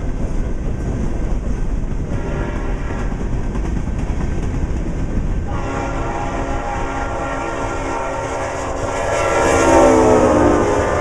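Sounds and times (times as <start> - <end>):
diesel freight train rumbling: 0.0 - 11.0
locomotive air horn: 2.2 - 3.0, 5.5 - 11.0.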